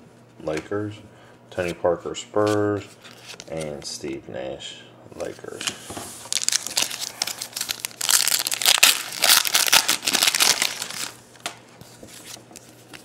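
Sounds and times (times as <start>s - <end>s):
card pack wrapper tearing: 6.3s - 11.2s.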